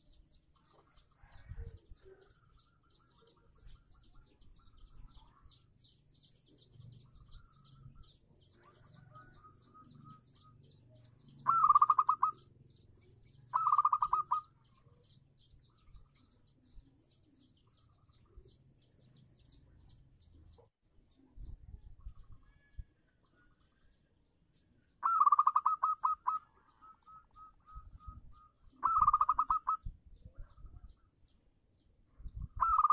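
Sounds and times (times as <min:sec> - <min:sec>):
dove cooing: 0:11.4 - 0:12.4, 0:13.5 - 0:14.5, 0:25.0 - 0:29.8, 0:32.6 - 0:32.9.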